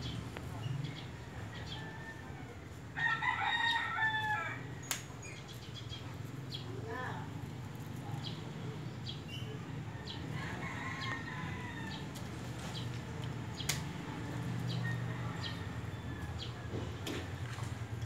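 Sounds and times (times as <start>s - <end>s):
leaves rustling: 11.0s - 16.0s.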